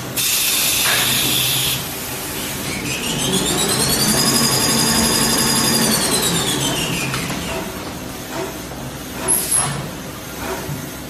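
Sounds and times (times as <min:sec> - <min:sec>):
machine drive whine: 0:01.8 - 0:07.7.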